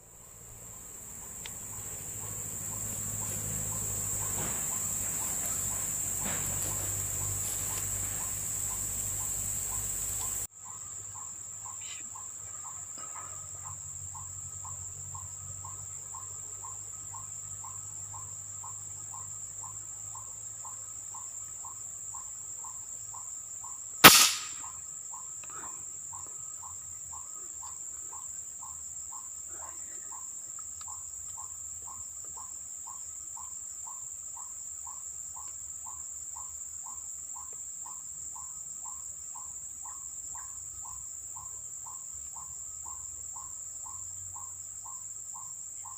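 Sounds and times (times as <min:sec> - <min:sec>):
high insect drone: 0:00.0 - 0:45.9
insect chirping: 0:00.0 - 0:45.9
air rifle shot: 0:24.0 - 0:24.7.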